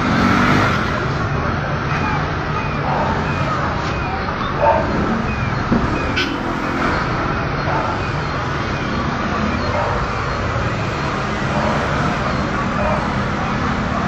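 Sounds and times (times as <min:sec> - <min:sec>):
street traffic: 0:00.0 - 0:14.0
vehicle engine running: 0:00.0 - 0:14.0.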